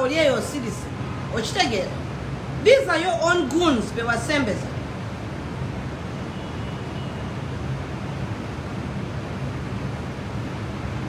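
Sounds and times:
background hum and hiss: 0.0 - 11.0.

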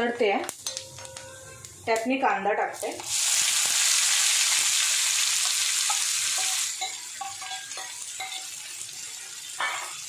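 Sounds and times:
onions sizzling in hot oil: 2.8 - 10.0.

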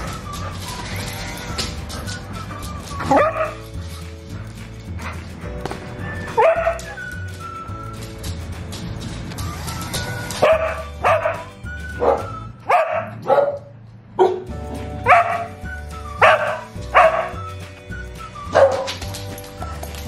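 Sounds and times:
upbeat background music: 0.0 - 13.2, 14.2 - 20.0
dog barking: 3.1 - 3.6, 6.3 - 7.0, 10.4 - 15.6, 16.2 - 17.4, 18.5 - 19.0.

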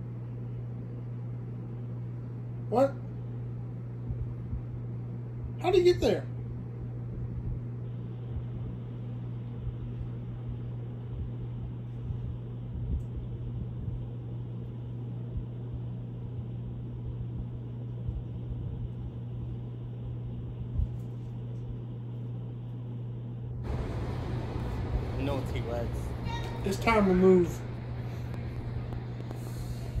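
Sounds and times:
low hum and hiss: 0.0 - 30.0
faint low thumps: 3.9 - 5.6, 6.5 - 21.0.

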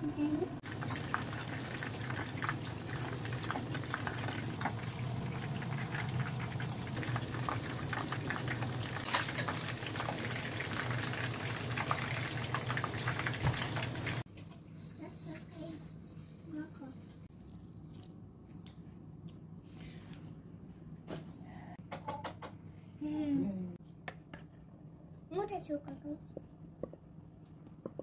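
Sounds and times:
chicken sizzling in hot oil: 0.6 - 14.3.

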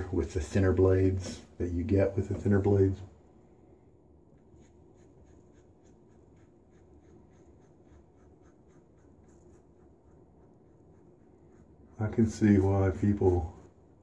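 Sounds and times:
razor scraping stubble: 4.4 - 13.8.

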